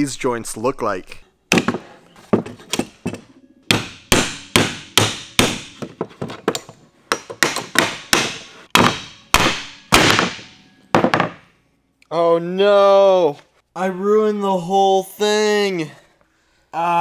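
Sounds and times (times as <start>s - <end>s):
claw hammer striking wood: 1.5s - 1.9s, 2.7s - 11.4s.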